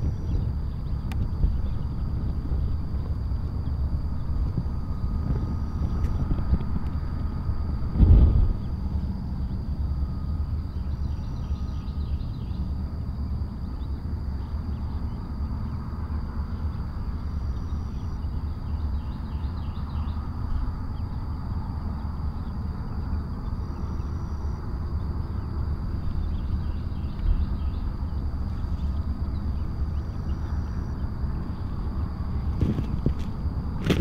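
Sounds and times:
faint bird chirping: 0.0 - 6.5, 8.5 - 32.7
low rumble: 0.0 - 34.0
constant high tone: 8.6 - 33.8.

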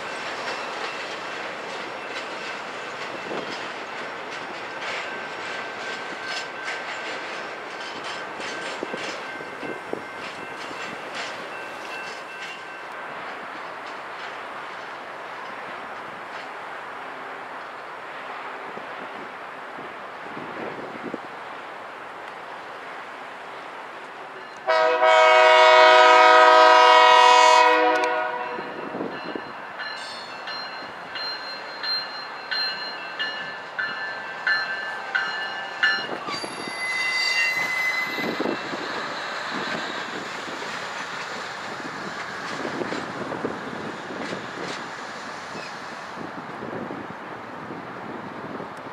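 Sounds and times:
locomotive bell ringing: 0.0 - 13.2, 28.3 - 40.2
locomotive horn blast: 24.6 - 28.8
high wheel squeal: 34.7 - 42.6.

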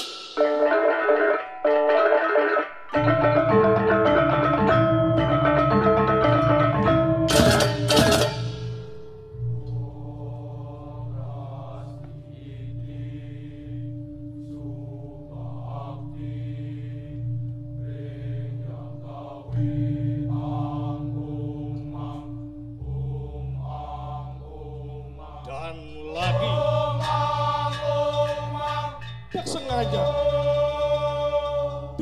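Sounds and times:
solo voice chanting: 24.2 - 32.0.

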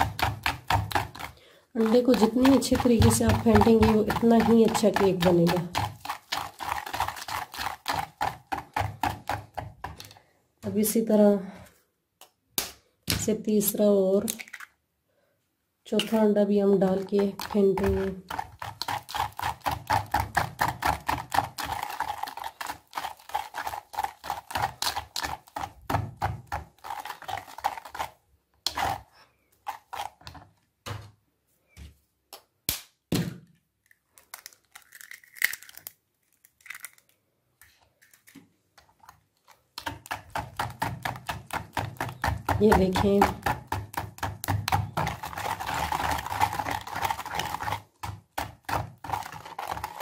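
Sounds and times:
whisk beating in plastic bowl: 0.0 - 10.2, 16.0 - 30.4, 39.8 - 50.0.

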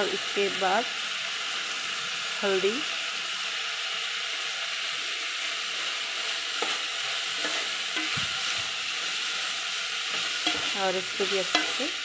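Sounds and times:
beans sizzling in hot oil: 0.0 - 12.0
metal spoon scraping a pot: 6.6 - 8.6, 10.1 - 12.0.

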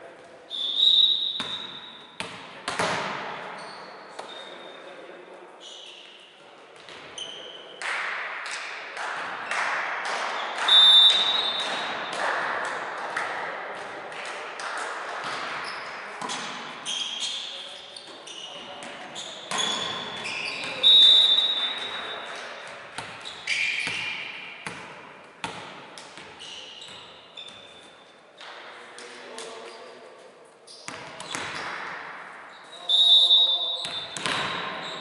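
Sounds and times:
ball bouncing on wooden floor: 2.2 - 3.3, 33.8 - 34.8.

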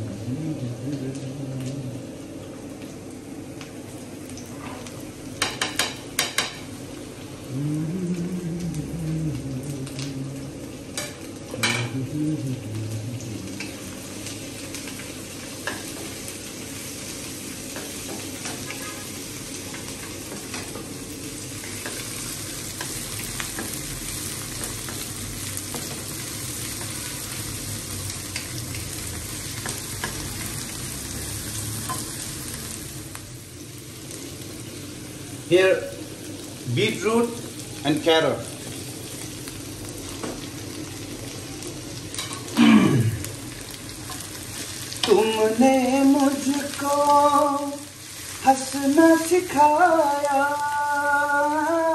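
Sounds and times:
vegetables sizzling in hot oil: 0.0 - 51.9.

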